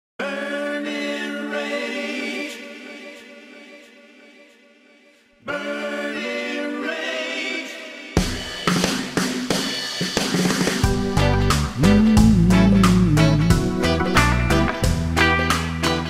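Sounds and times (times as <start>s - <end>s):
wordless choir singing: 0.2s - 8.6s.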